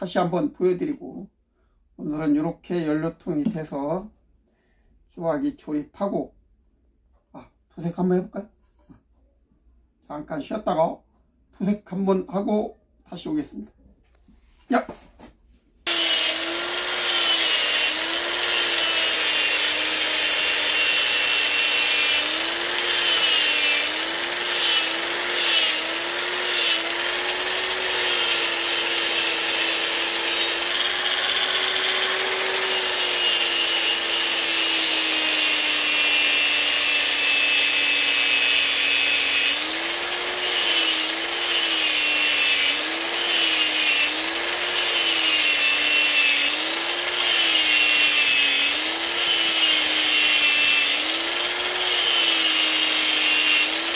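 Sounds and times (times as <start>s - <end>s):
angle grinder grinding metal: 15.9s - 53.9s.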